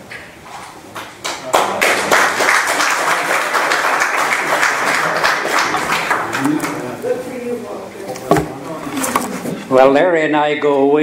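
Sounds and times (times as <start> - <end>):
audience applauding: 1.2 - 7.0.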